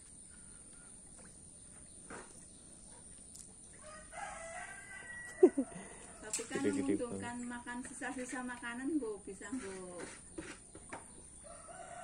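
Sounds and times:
rooster crowing: 3.8s - 6.3s, 11.4s - 12.0s.

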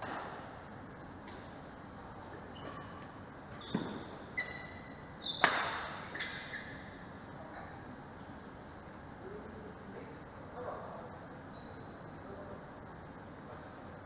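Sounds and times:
racket hitting shuttlecock: 0.0s - 0.6s, 5.4s - 6.3s
shoes squeaking on court: 2.3s - 7.0s.

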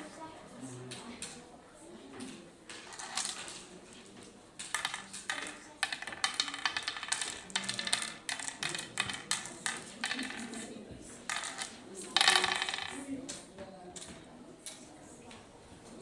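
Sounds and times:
game pieces clicking on wooden board: 4.6s - 14.8s.

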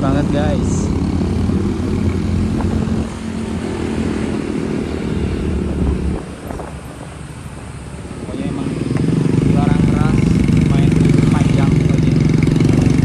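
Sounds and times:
motorcycle engine running: 0.0s - 13.0s
road and wind noise: 0.0s - 13.0s.

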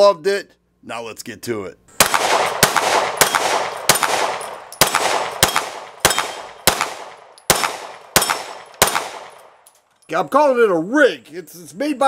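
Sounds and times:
pistol shots: 2.0s - 9.6s.

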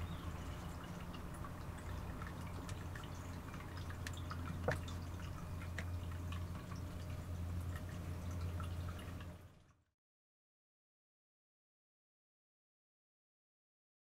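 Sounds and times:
steady low hum: 0.0s - 9.7s
small clicks and taps: 4.0s - 5.0s, 5.6s - 6.0s.

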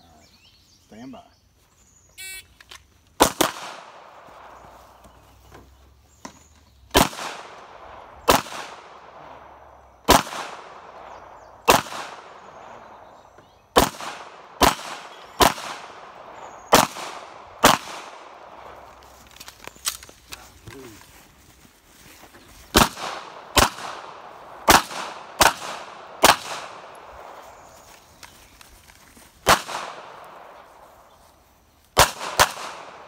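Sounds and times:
pistol shots with echo: 3.2s - 4.6s, 6.9s - 18.8s, 22.8s - 27.5s, 29.4s - 30.7s, 32.0s - 33.0s.

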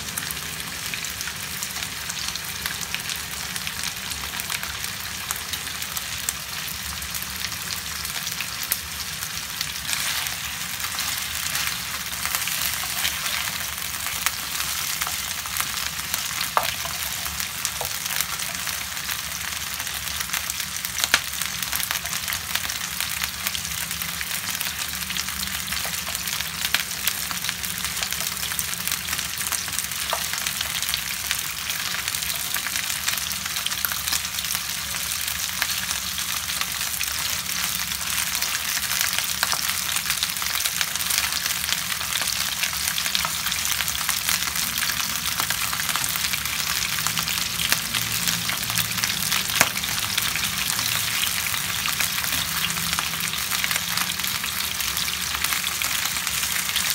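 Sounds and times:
chicken sizzling in oil: 0.0s - 56.9s
spatula stirring in pan: 9.6s - 15.4s.

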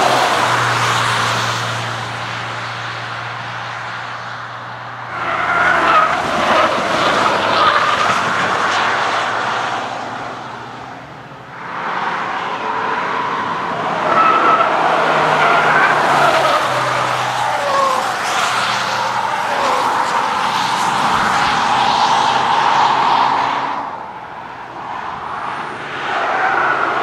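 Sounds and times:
car engine passing at speed: 0.0s - 27.0s
tyre noise through corners: 5.0s - 24.1s.

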